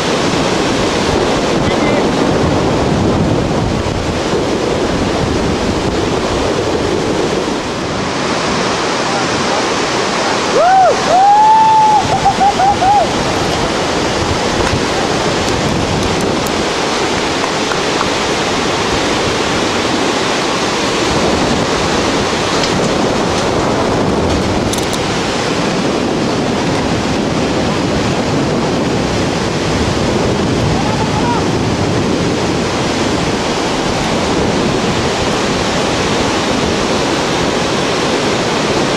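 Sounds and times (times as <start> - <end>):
whitewater river rushing: 0.0 - 38.9
wind: 0.0 - 38.9
man yelling: 10.4 - 13.1, 30.6 - 31.6.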